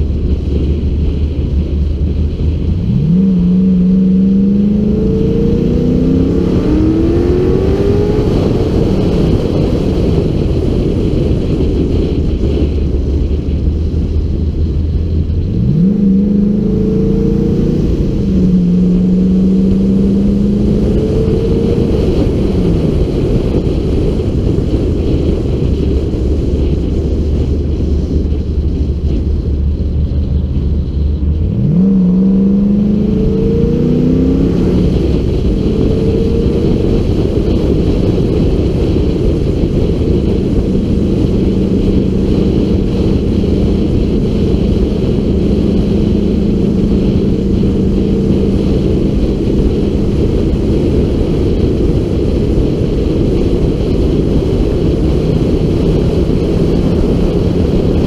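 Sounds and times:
car engine accelerating: 0:00.0 - 0:58.0
wind rush on microphone: 0:00.0 - 0:58.0.

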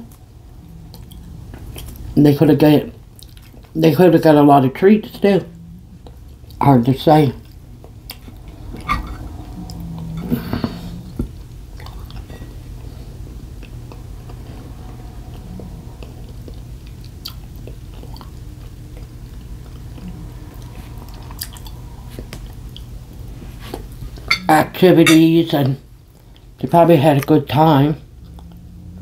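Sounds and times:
steady low hum: 0:00.0 - 0:29.0
person chewing food: 0:00.8 - 0:02.1, 0:03.2 - 0:03.7, 0:11.8 - 0:12.3, 0:16.0 - 0:20.0.

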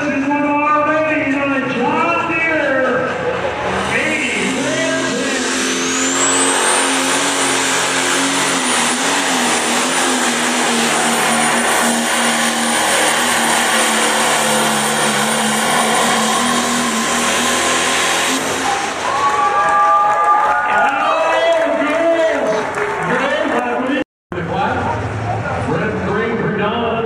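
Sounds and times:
engine at full throttle: 0:01.7 - 0:20.0.

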